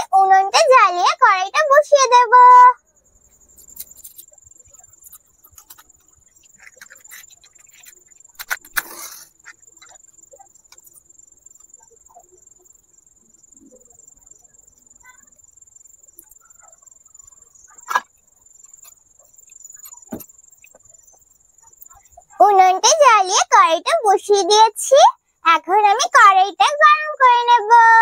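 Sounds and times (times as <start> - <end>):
matchstick striking matchbox: 5.0 - 9.9.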